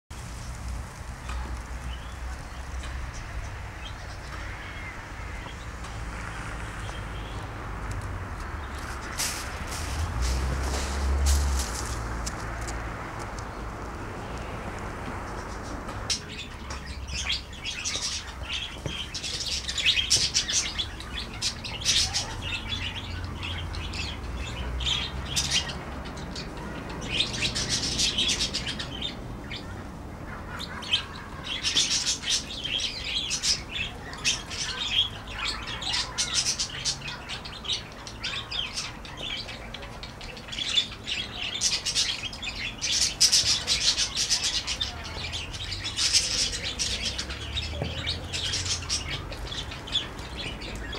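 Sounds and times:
budgerigars chattering: 0:16.1 - 0:50.9.

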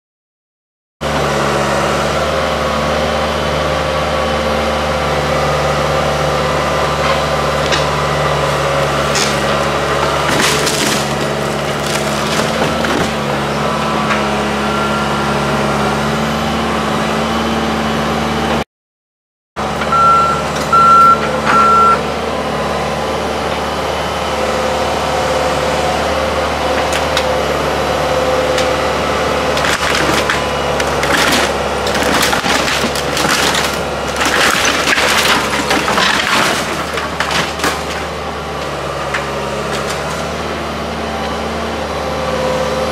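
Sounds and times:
excavator diesel engine running: 0:01.0 - 0:18.6, 0:19.6 - 0:42.9
wood knocking and cracking: 0:10.2 - 0:13.3, 0:29.6 - 0:38.1
backup alarm beeps: 0:19.9 - 0:22.0.

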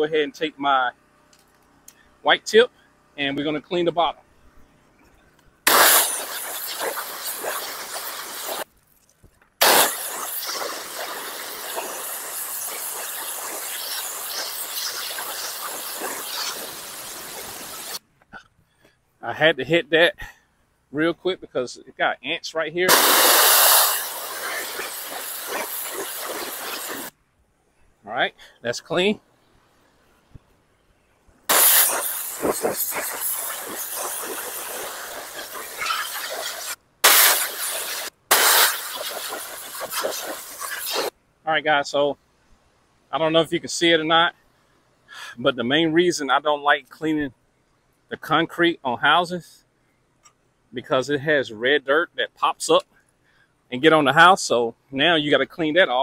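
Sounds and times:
pressure washer spraying water: 0:05.7 - 0:08.7, 0:09.6 - 0:18.0, 0:22.9 - 0:27.1, 0:31.5 - 0:41.1.

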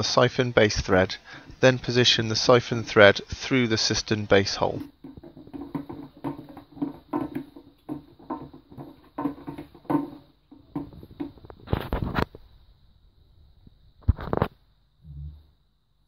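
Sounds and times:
plastic knocks and clicks: 0:04.8 - 0:12.3
plastic clatter: 0:04.8 - 0:12.4.

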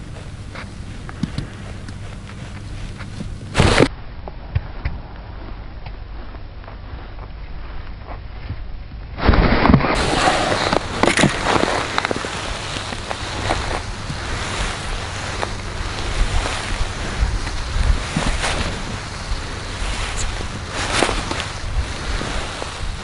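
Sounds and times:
wind buffeting microphone: 0:10.0 - 0:23.0.

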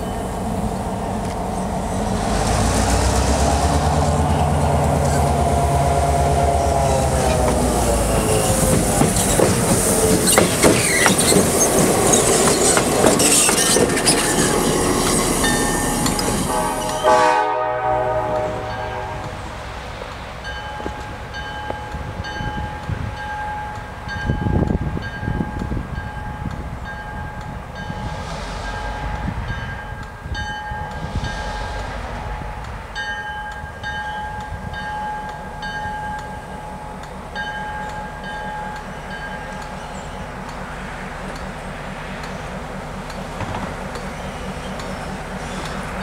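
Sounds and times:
diesel locomotive engine rumble: 0:00.0 - 0:46.0.

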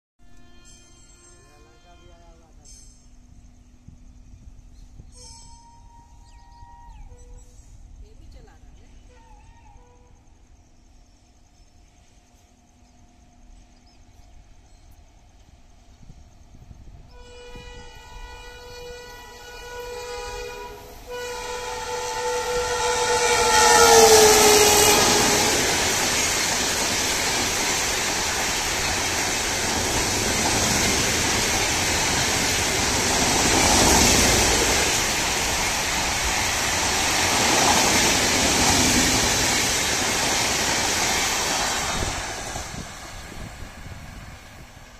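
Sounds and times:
train horn honking: 0:00.2 - 0:02.8, 0:05.1 - 0:07.7, 0:17.1 - 0:26.3
train coaches rushing past: 0:20.2 - 0:44.9.

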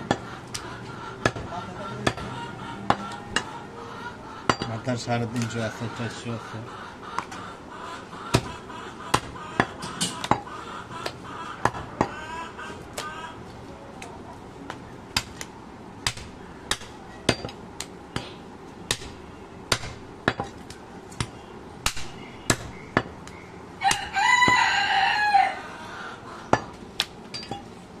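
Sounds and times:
rooster crowing: 0:23.8 - 0:26.2.

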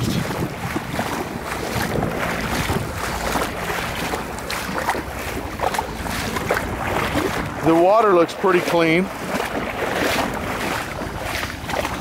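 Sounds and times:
water sloshing and splashing: 0:00.0 - 0:12.0
wind rumbling on microphone: 0:00.0 - 0:12.0.

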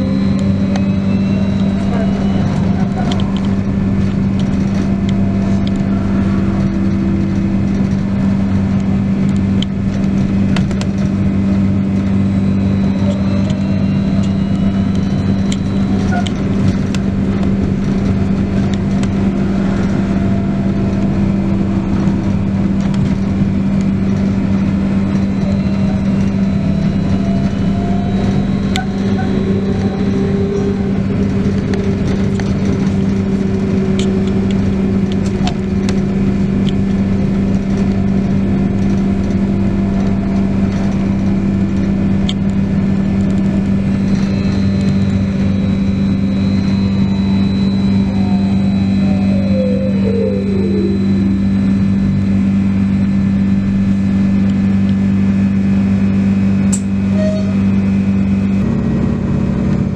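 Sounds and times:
bus body rattles and clicks: 0:00.0 - 0:59.9
steady low hum: 0:00.0 - 0:59.9
electric motor whine: 0:40.4 - 0:56.6.

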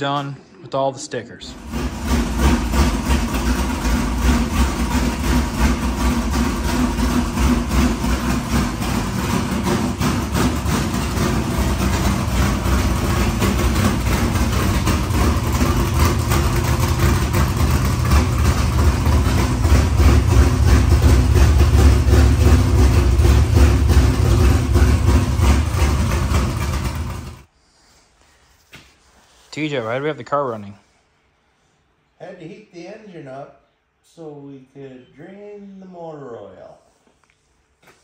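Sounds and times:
race car engine idling: 0:01.5 - 0:27.5.

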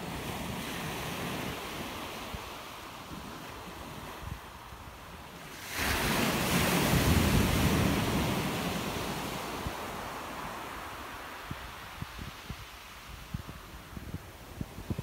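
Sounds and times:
wind on microphone: 0:00.0 - 0:15.0
wave breaking on shore: 0:05.5 - 0:13.2.

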